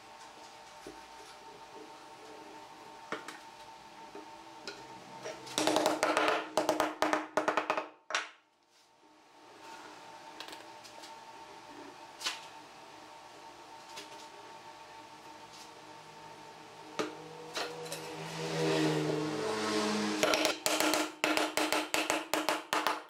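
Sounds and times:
wooden mallet knocking on board: 0:20.2 - 0:23.0.

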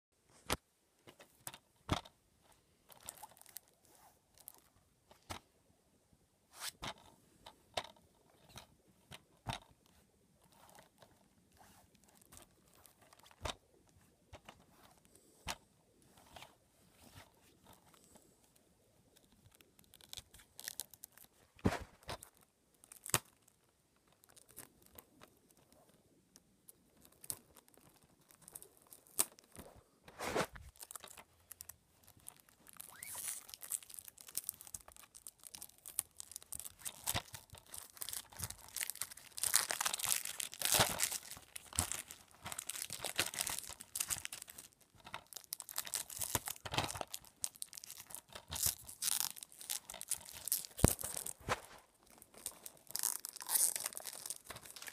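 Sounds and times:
packaging tearing and crinkling: 0:19.5 - 0:23.6, 0:30.6 - 0:54.9.

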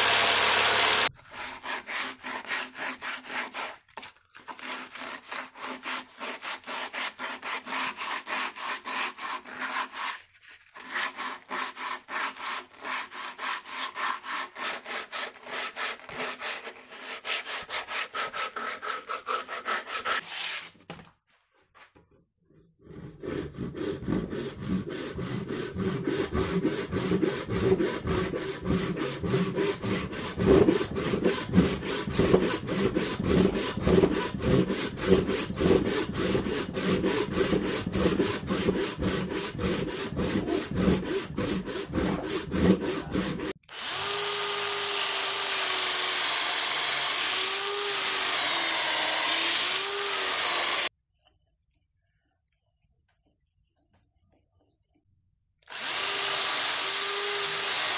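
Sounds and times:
cordless drill boring into wood: 0:00.0 - 0:01.1, 0:42.5 - 0:50.9, 0:55.7 - 0:57.9
hand saw cutting a branch: 0:00.0 - 0:03.8, 0:04.4 - 0:10.2, 0:10.8 - 0:20.2, 0:23.2 - 0:50.9, 0:55.7 - 0:57.9.

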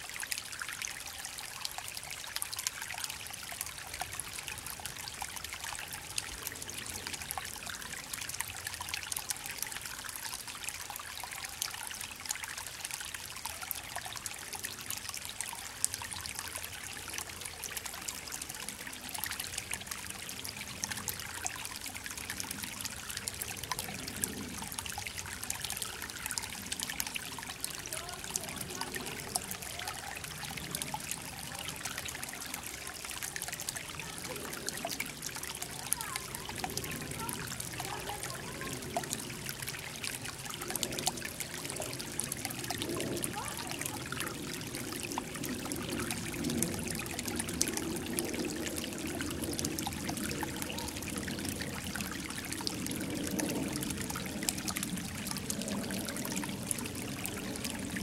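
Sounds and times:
creek trickling over stones: 0:00.0 - 0:58.0.

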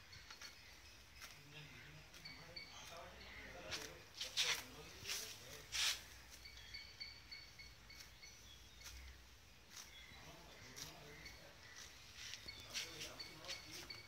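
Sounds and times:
cow tearing grass: 0:08.8 - 0:10.0, 0:10.6 - 0:14.0.

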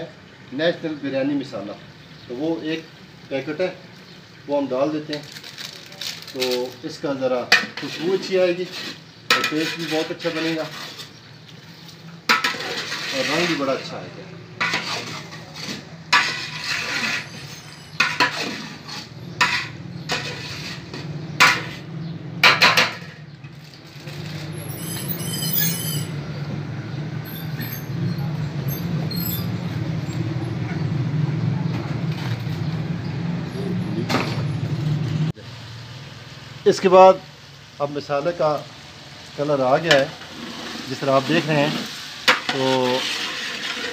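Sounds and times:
ladle scraping metal pot: 0:05.1 - 0:26.2, 0:39.9 - 0:43.9.

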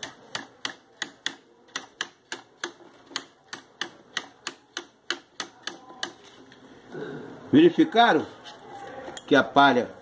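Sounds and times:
tool clicking on cane strands: 0:00.0 - 0:06.6.

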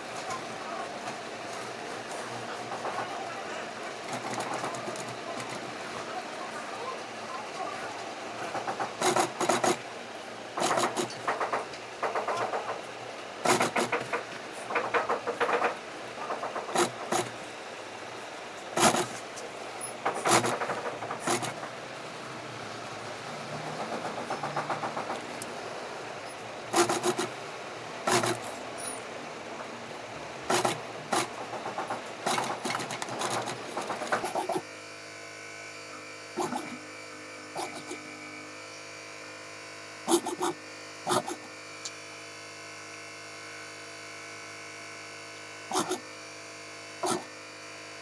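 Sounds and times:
steady hum: 0:00.0 - 0:44.1, 0:45.4 - 0:47.4
sewing machine stitching: 0:08.4 - 0:09.8, 0:10.6 - 0:12.8, 0:13.4 - 0:17.4, 0:18.8 - 0:19.2, 0:20.0 - 0:21.8, 0:23.5 - 0:25.4, 0:26.7 - 0:27.4, 0:28.1 - 0:29.0, 0:30.5 - 0:34.6, 0:40.1 - 0:41.4, 0:45.7 - 0:46.0, 0:47.0 - 0:47.3.

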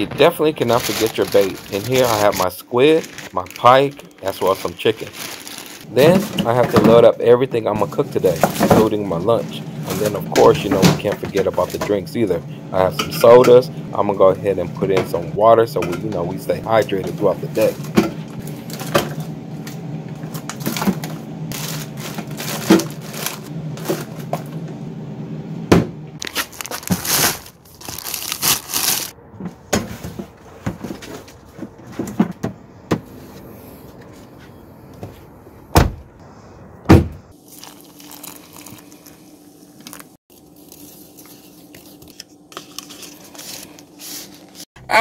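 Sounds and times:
plastic bags rustling: 0:00.0 - 0:07.1, 0:07.7 - 0:11.8, 0:20.2 - 0:24.3, 0:26.2 - 0:29.2, 0:37.4 - 0:44.7
steady low hum: 0:00.0 - 0:26.2
cans and bottles clattering: 0:20.6 - 0:24.4.

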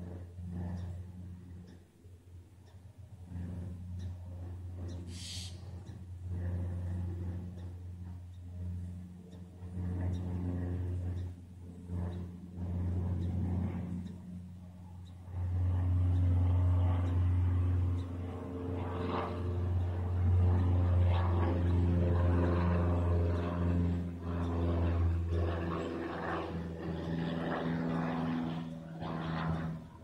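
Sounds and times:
engine droning: 0:00.0 - 0:30.0.

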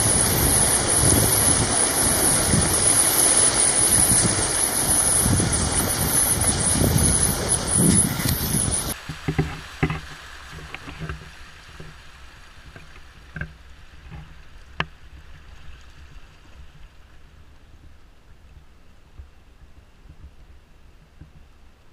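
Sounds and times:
flood water rushing: 0:00.0 - 0:14.0.

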